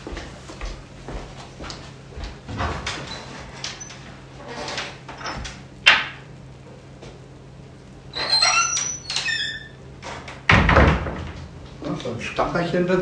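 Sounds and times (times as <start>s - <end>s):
high sliding door squeaks: 2.8s - 5.6s, 8.1s - 11.2s.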